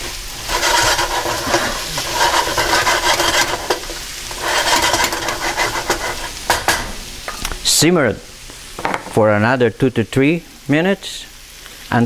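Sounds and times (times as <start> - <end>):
wooden spatula scraping skillet: 0.0 - 7.1
meat sizzling: 0.0 - 12.0.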